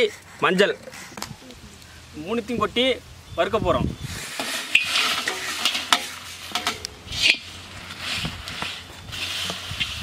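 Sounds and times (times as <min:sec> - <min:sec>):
metal spatula scraping pan: 0:04.2 - 0:10.0.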